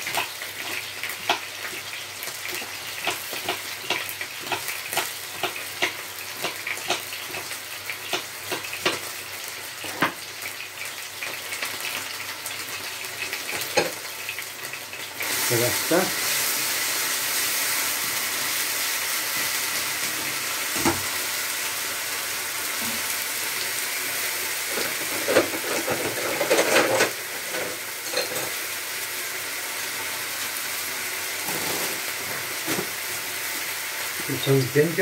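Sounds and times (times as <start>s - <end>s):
meat sizzling in a frying pan: 0.0s - 35.0s
wooden spatula scraping a pan: 24.7s - 28.6s.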